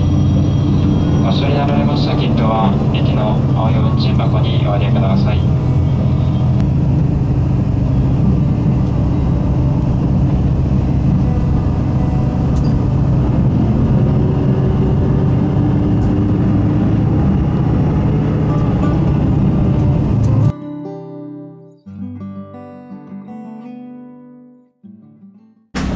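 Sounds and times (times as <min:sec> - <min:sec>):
train rumbling along the line: 0:00.0 - 0:20.5.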